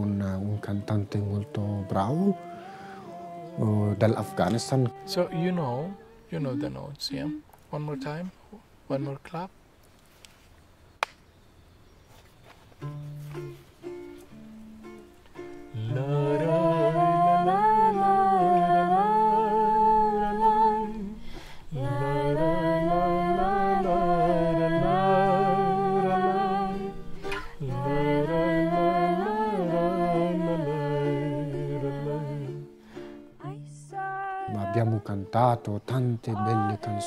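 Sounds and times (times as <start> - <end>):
woman singing: 0.0 - 7.5, 15.8 - 32.7, 33.4 - 37.0
acoustic guitar strumming: 12.8 - 37.0.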